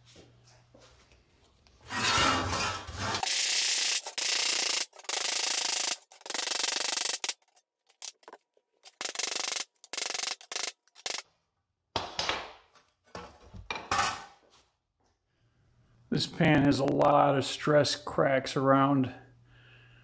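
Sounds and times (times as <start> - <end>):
harsh rasping metal noise: 1.8 - 3.5.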